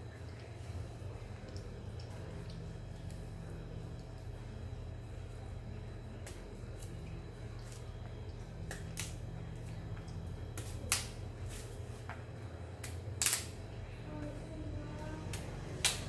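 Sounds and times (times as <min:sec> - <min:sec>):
low hum: 0:00.0 - 0:12.7.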